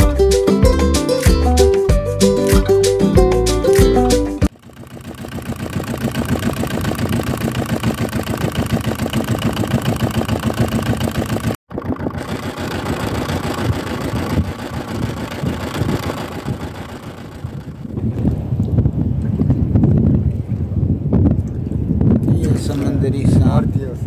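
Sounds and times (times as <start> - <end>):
boat engine running: 4.4 - 18.5.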